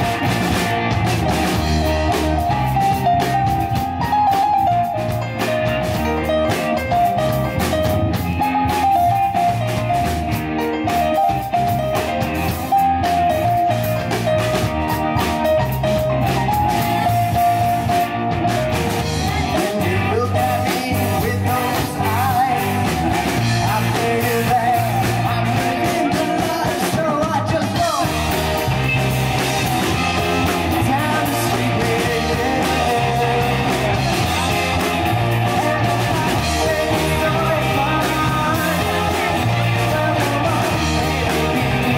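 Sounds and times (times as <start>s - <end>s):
drum kit beat: 0.0s - 41.9s
electric guitars: 0.0s - 41.9s
keyboard: 0.0s - 41.9s.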